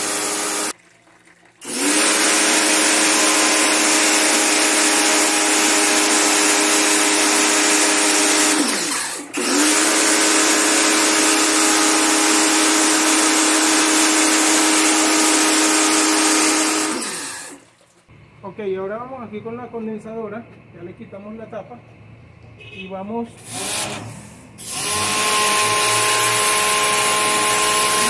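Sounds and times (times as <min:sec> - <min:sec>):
pressure washer motor humming: 0:00.0 - 0:00.8, 0:01.6 - 0:17.7, 0:23.4 - 0:28.0
water jet hissing: 0:00.0 - 0:00.8, 0:01.6 - 0:18.0.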